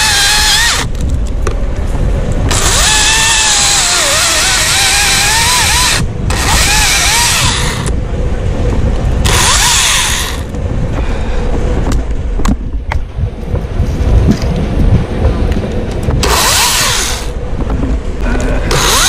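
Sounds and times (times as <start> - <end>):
chainsaw revving and cutting wood: 0.0 - 0.9, 2.5 - 7.9, 9.2 - 10.4, 16.2 - 17.3, 18.6 - 19.0.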